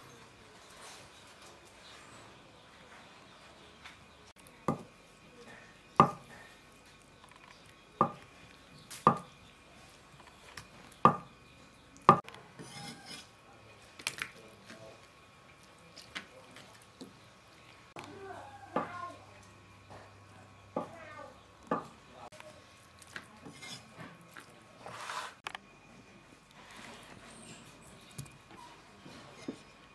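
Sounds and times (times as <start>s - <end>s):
cleaver chopping on wooden board: 4.7s - 4.9s, 6.0s - 6.3s, 8.0s - 8.2s, 9.0s - 9.3s.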